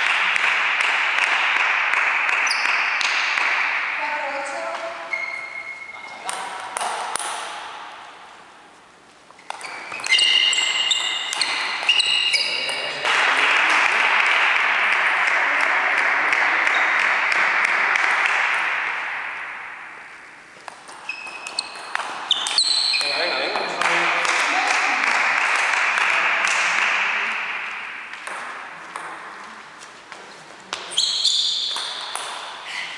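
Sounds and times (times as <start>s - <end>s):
applause: 13.0s - 18.6s, 23.8s - 27.4s.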